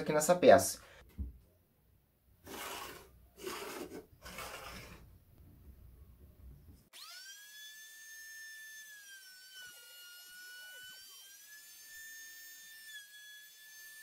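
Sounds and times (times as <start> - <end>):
pencil scratching on wood: 2.5 - 5.0
router motor whine: 6.9 - 14.0.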